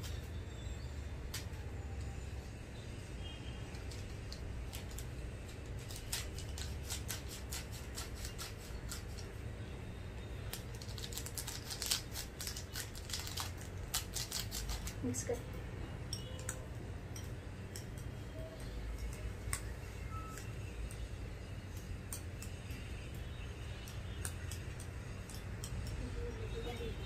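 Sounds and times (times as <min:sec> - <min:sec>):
fork stirring in bowl: 0:05.8 - 0:09.3, 0:16.1 - 0:21.0
noodles being crumbled: 0:10.5 - 0:15.0.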